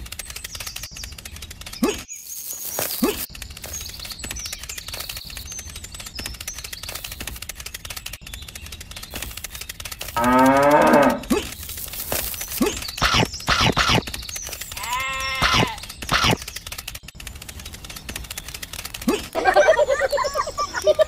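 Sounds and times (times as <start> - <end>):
rapid faint clicking: 0.0 - 21.0
cow mooing: 10.2 - 11.3, 14.8 - 15.8.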